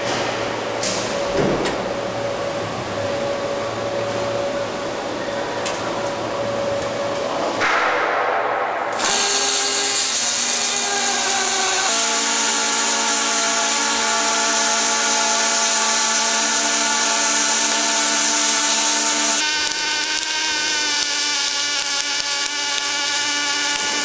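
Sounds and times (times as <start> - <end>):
arc welding hiss and buzz: 8.9 - 24.0
robot electric whine: 9.0 - 24.0.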